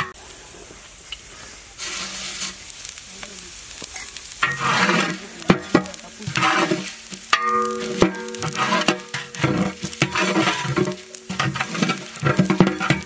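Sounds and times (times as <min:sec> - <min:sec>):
seeds sizzling in hot oil: 0:00.0 - 0:13.0
metal spatula scraping pot: 0:04.4 - 0:13.0.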